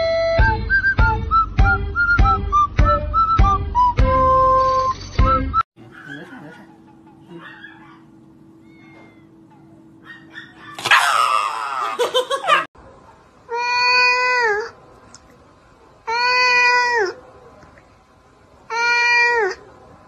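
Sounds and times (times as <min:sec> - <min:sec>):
dog screaming: 0:07.4 - 0:09.4, 0:10.0 - 0:12.7
cat meowing: 0:08.6 - 0:09.4.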